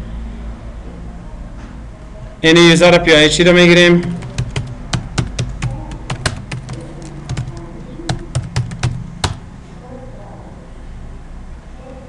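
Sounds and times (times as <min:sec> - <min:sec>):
computer keyboard keys clicking: 0:04.0 - 0:09.5.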